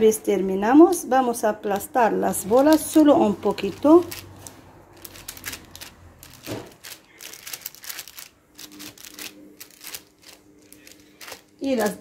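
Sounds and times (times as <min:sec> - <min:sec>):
paper rustling: 0:02.5 - 0:12.0.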